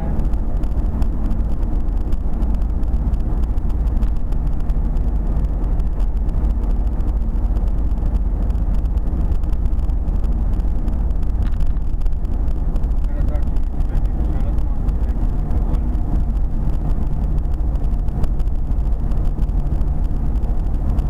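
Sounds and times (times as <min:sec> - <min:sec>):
car road and engine rumble: 0:00.0 - 0:21.0.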